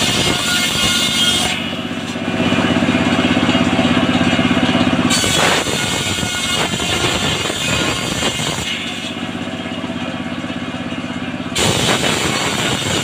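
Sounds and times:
circular saw blade ripping wood: 0:00.0 - 0:02.3, 0:05.0 - 0:09.4, 0:11.6 - 0:13.0
tractor engine running: 0:01.6 - 0:05.8, 0:09.0 - 0:12.6.

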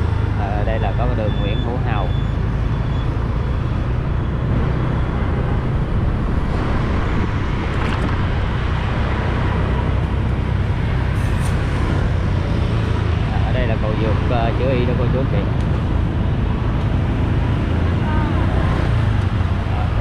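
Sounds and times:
city street traffic rumble: 0:00.0 - 0:20.0.

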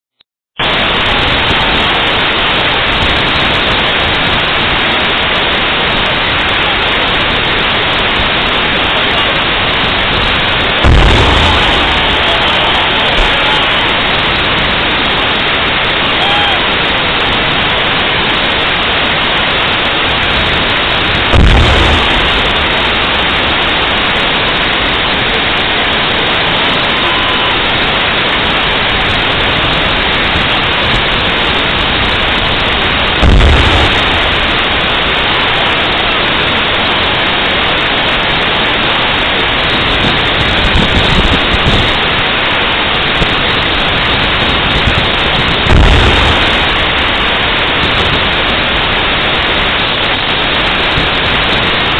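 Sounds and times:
loud steady hiss: 0:00.6 - 0:51.9
tank gun firing booms: 0:10.8 - 0:12.5, 0:21.2 - 0:23.3, 0:33.1 - 0:34.9, 0:45.6 - 0:47.2.

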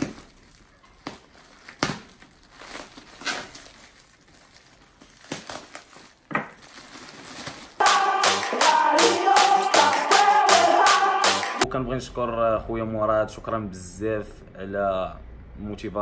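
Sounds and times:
plastic wrap crinkling: 0:00.0 - 0:07.8
electronic music: 0:07.8 - 0:12.1.

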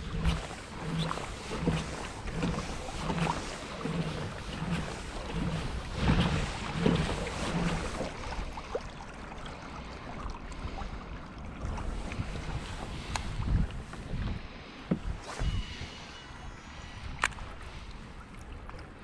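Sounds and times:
wind on microphone: 0:00.0 - 0:08.6, 0:11.6 - 0:17.7
water lapping against hull: 0:00.0 - 0:19.0
water swishing: 0:00.0 - 0:19.0
soft low pulse: 0:15.0 - 0:18.0.

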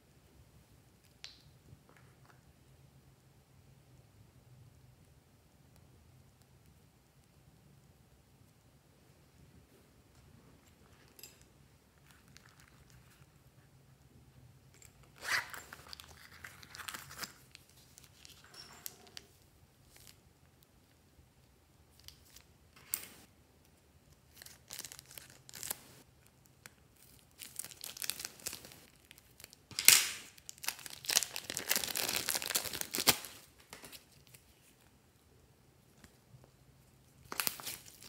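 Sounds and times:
plastic bag crinkling: 0:30.4 - 0:34.4.

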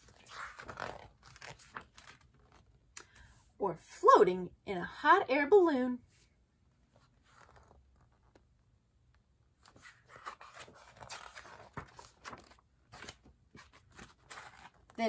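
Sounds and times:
paper page rustling: 0:00.0 - 0:02.8, 0:06.9 - 0:08.4, 0:09.6 - 0:15.0.

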